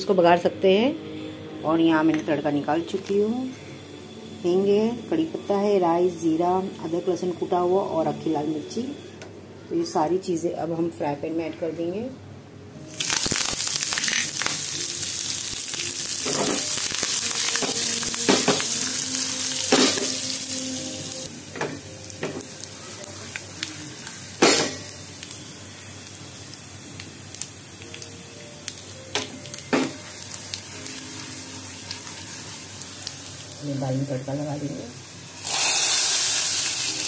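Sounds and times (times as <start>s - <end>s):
spices sizzling in hot oil: 1.8s - 9.0s, 12.8s - 37.0s.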